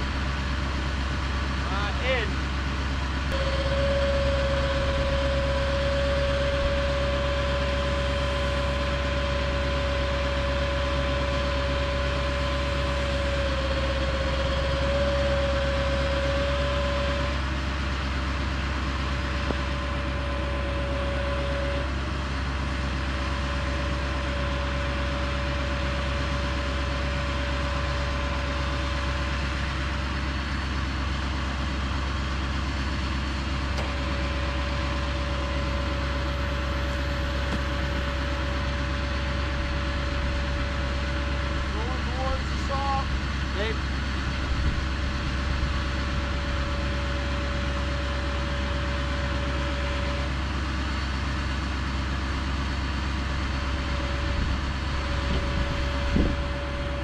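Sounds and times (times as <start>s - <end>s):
gas engine drone: 0.0s - 57.0s
bandsaw high whine: 3.3s - 17.5s, 19.0s - 22.1s.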